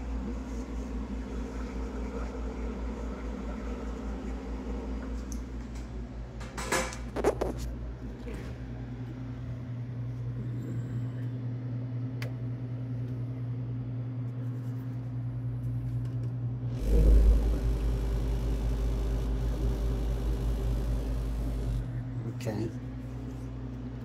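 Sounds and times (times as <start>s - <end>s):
freezer humming: 15.0s - 24.0s
rush of fan air: 16.7s - 22.0s
low rumble: 16.7s - 22.2s.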